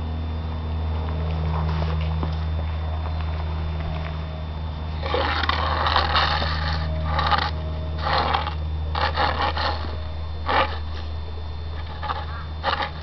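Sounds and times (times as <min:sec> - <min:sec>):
steady low hum: 0:00.0 - 0:13.0
broom scraping floor: 0:05.0 - 0:11.1.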